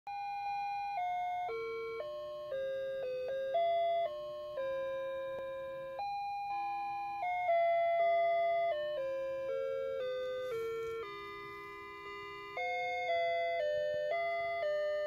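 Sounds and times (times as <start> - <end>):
tinny electronic melody: 0.1 - 15.0.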